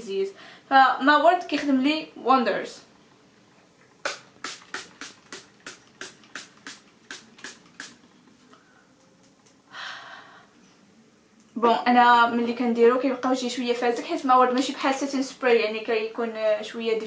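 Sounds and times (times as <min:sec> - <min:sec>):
pump spray bottle spritzing: 0:04.0 - 0:08.1
short soft hiss: 0:04.0 - 0:08.8.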